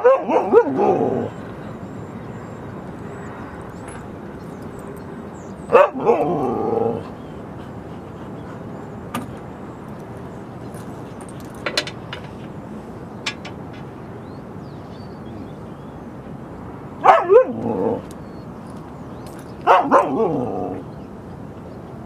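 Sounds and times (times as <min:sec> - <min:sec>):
dog barking: 0:00.0 - 0:01.0, 0:05.7 - 0:06.3, 0:17.0 - 0:17.6, 0:19.6 - 0:20.4.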